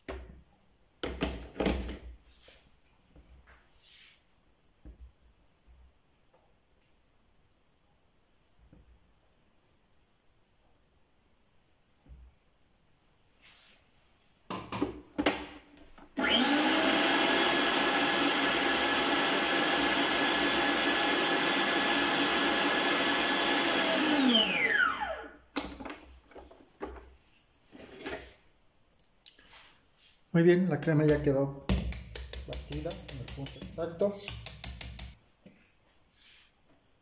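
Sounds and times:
stand mixer motor whining: 0:16.2 - 0:25.3
mixer head clicks and knocks: 0:31.7 - 0:35.2.

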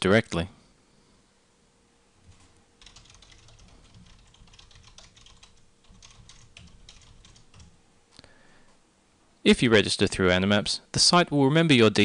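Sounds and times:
faint typing on keyboard: 0:02.2 - 0:07.8.

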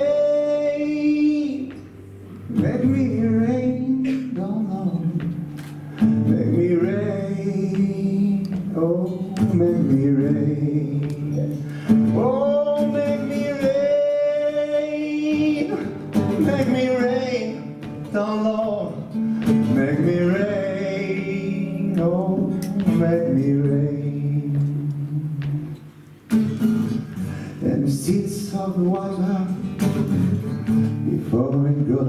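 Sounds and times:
man singing with vibrato: 0:00.0 - 0:26.0, 0:27.0 - 0:32.0
acoustic guitar: 0:00.0 - 0:32.0.

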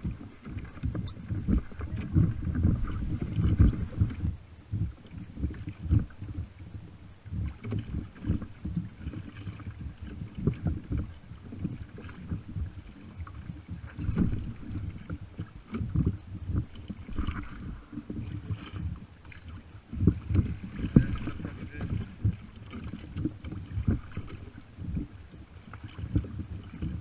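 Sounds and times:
waves slapping against kayak hull: 0:00.0 - 0:27.0
wind on microphone: 0:00.0 - 0:27.0.

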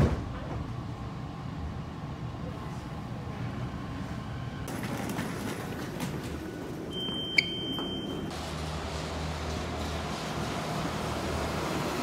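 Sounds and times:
street traffic noise: 0:00.0 - 0:12.0
card reader beep: 0:06.9 - 0:08.3.

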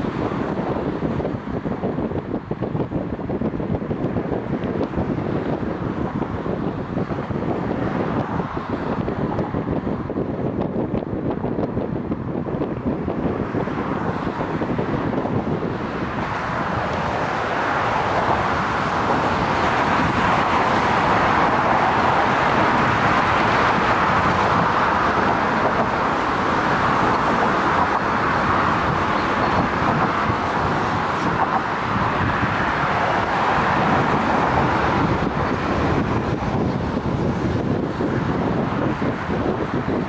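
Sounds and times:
road traffic: 0:00.0 - 0:40.0
electric trains rushing past: 0:15.2 - 0:38.8.

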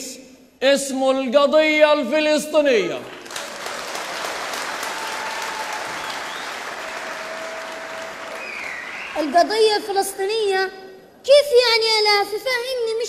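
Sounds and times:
audience applauding: 0:03.0 - 0:09.7.

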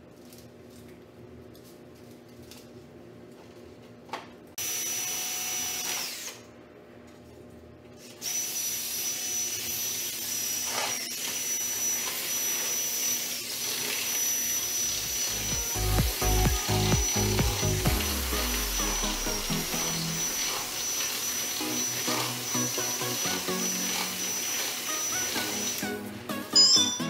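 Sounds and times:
cordless drill whining: 0:04.6 - 0:06.4, 0:08.2 - 0:26.1.

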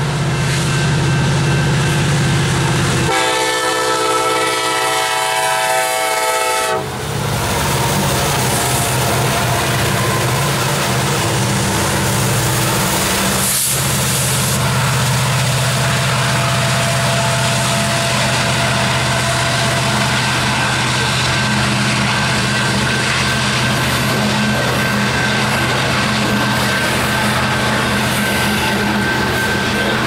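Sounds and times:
diesel locomotive drone: 0:00.0 - 0:30.0
steel wheels clattering on rails: 0:07.0 - 0:30.0
short hiss: 0:13.3 - 0:14.7.

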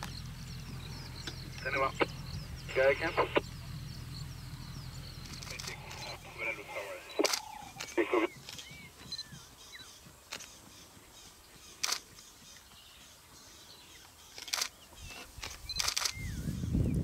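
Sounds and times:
low rumbling noise: 0:00.0 - 0:09.4
birds whistling: 0:00.0 - 0:17.0
camera shutter clicks: 0:07.1 - 0:08.6, 0:11.8 - 0:12.0, 0:14.4 - 0:16.2.

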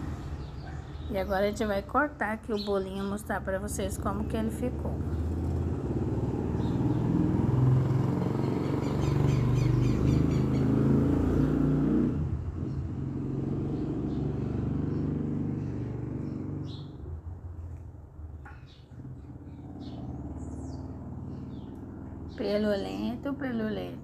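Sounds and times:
vehicle engine rumbling: 0:00.0 - 0:24.0.

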